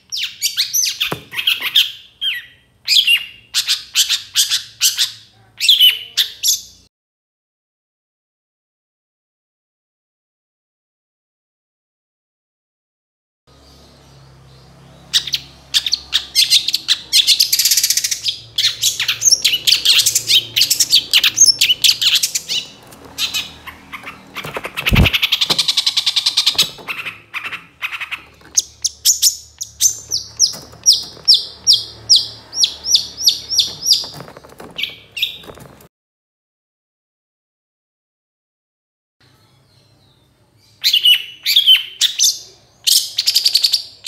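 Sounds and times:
shrike singing: 15.9s - 35.6s.

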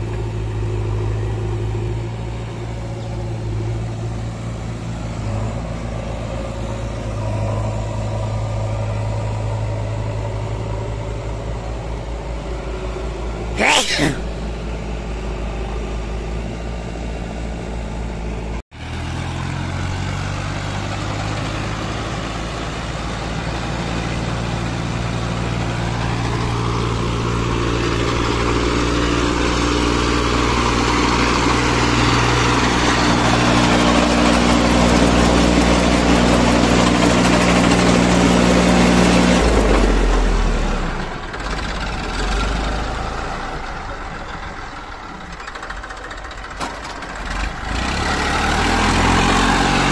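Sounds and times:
low engine rumble: 0.0s - 18.6s
backhoe diesel engine running: 0.0s - 49.9s
tractor diesel engine running: 0.0s - 49.9s.

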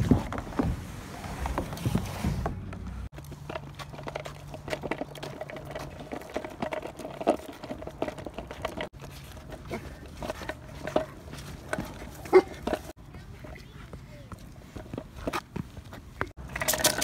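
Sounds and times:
skateboard rolling on concrete: 0.0s - 17.0s.

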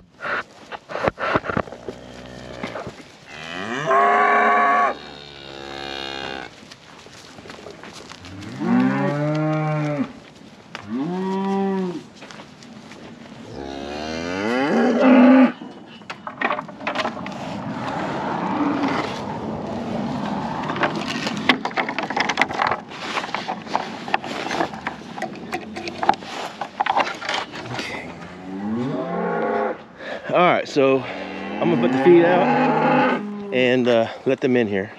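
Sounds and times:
cows mooing: 1.6s - 6.6s, 8.2s - 10.2s, 10.8s - 12.0s, 13.5s - 15.8s, 17.8s - 19.4s, 28.1s - 29.8s, 31.0s - 33.7s
clicks and rustling: 15.7s - 18.0s, 20.2s - 28.1s.

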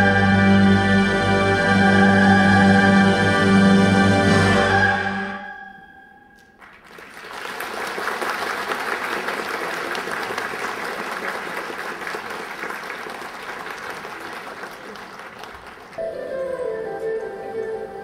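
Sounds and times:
audience applause: 6.6s - 16.0s.

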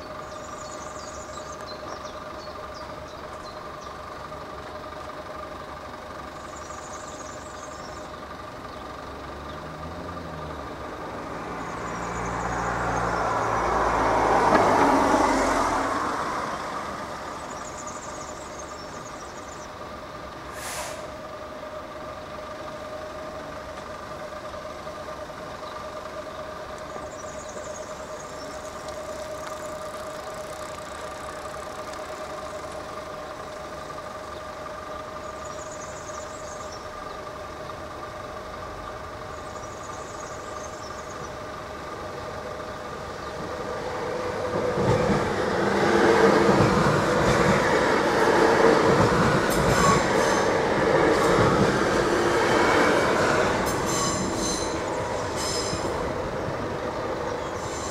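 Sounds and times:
car engine and tyre noise: 0.0s - 57.9s
brief hiss: 20.5s - 21.2s.

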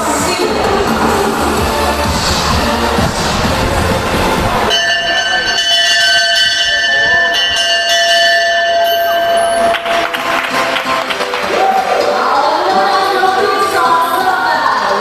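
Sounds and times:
crowd noise: 0.0s - 15.0s
music: 0.0s - 15.0s
bell ringing: 4.7s - 11.0s.

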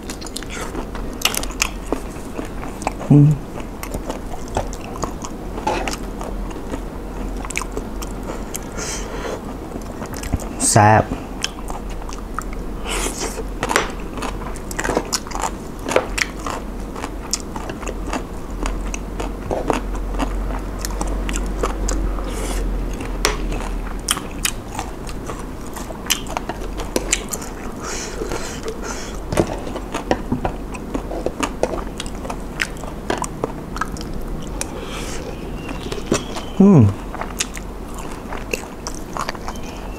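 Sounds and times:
close-miked chewing and crunching: 0.0s - 39.9s.

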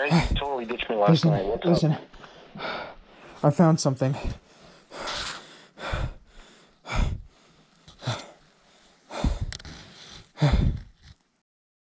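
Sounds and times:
person breathing hard: 0.1s - 0.4s, 2.1s - 3.4s, 4.1s - 11.2s.

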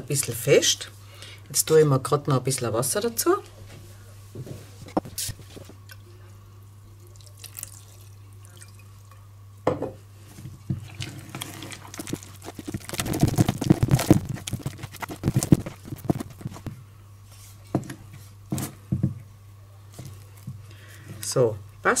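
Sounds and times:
water pouring from a jar: 7.0s - 9.1s, 10.8s - 16.6s
wooden spoon stirring thick mix: 10.7s - 16.8s.

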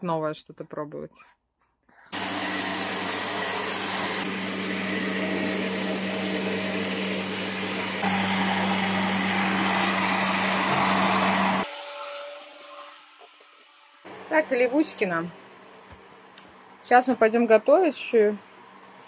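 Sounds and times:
appliance motor humming: 2.1s - 11.7s.

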